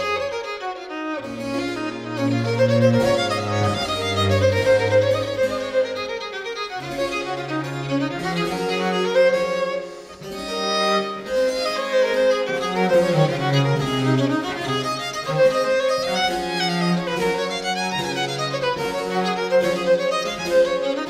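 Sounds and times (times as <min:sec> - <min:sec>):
cello: 0:00.0 - 0:21.0
violin playing: 0:00.0 - 0:21.0.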